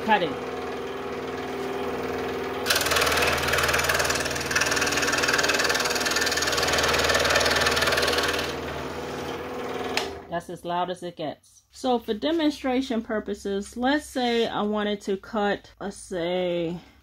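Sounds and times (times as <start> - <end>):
scroll saw cutting wood: 0.0 - 10.3.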